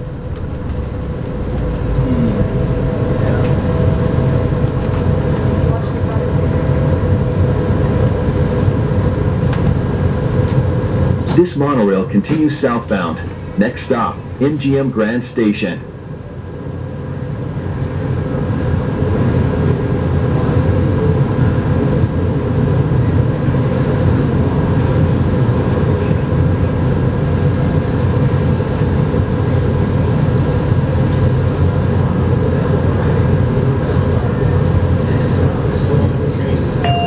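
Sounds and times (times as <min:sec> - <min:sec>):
train car low hum and rumble: 0:00.0 - 0:37.0.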